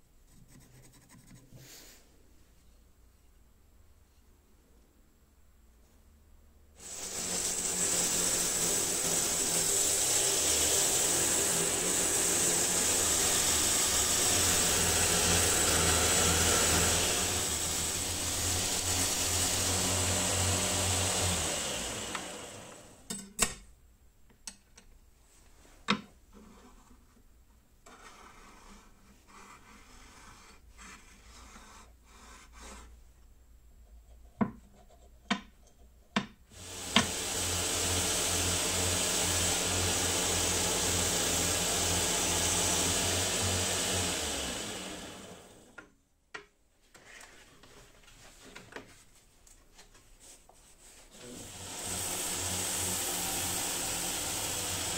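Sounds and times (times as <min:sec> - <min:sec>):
belt grinder sanding wood: 0:06.8 - 0:23.0, 0:36.6 - 0:45.7, 0:50.8 - 0:54.9
wooden knocks and taps: 0:34.3 - 0:36.4.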